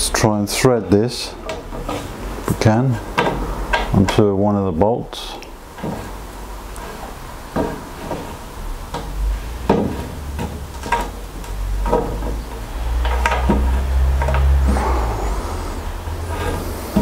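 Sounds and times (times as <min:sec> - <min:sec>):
metal scraping and knocking on metal: 0:00.8 - 0:04.3, 0:05.7 - 0:06.2, 0:06.8 - 0:15.2, 0:15.8 - 0:17.0.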